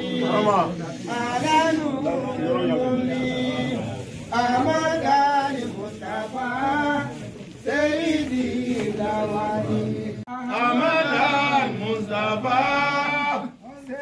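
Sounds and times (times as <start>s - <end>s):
man chanting: 0.0s - 7.2s.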